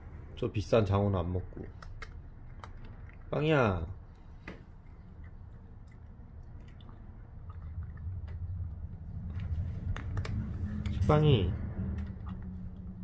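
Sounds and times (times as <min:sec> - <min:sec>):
low hum: 0:03.9 - 0:13.0.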